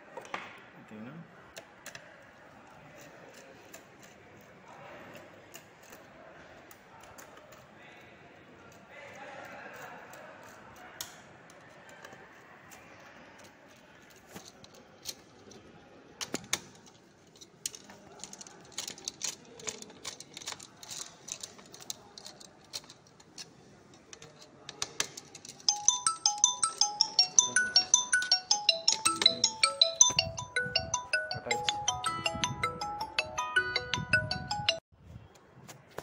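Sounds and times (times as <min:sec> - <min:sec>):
screwdriver clicks and metallic taps: 0:09.8 - 0:12.2
tinkling ringtone melody: 0:25.7 - 0:34.8.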